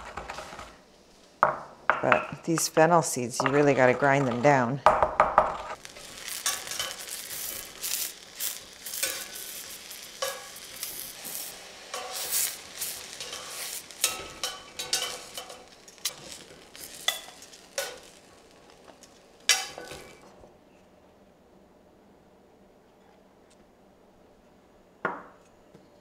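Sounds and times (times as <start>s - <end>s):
mushrooms sizzling in skillet: 0.0s - 20.2s
metal tongs clicking and scraping: 13.0s - 18.1s.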